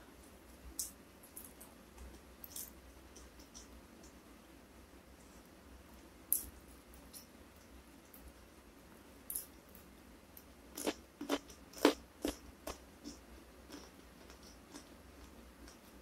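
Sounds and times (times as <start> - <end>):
crunching fried fish: 10.7 - 15.8
soft chewing: 10.7 - 16.0.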